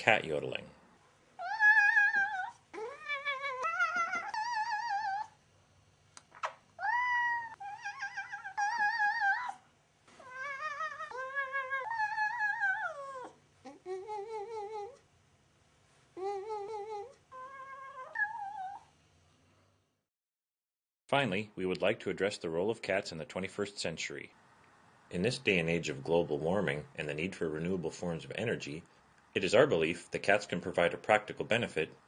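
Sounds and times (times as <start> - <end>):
cat yowling: 1.4 - 5.4, 6.8 - 9.6, 10.2 - 15.0, 16.3 - 18.9.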